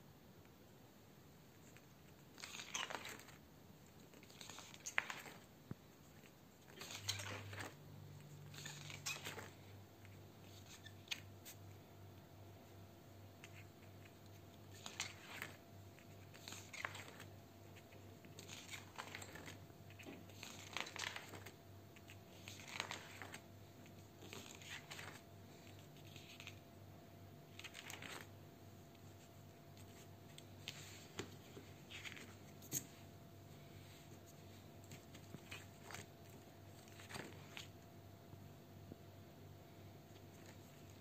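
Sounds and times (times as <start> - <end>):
low steady hum: 0.0 - 41.0
card pages turning: 2.4 - 3.4, 4.1 - 5.5, 6.1 - 9.7, 13.4 - 26.6, 27.5 - 28.4, 29.0 - 33.0, 34.8 - 37.8.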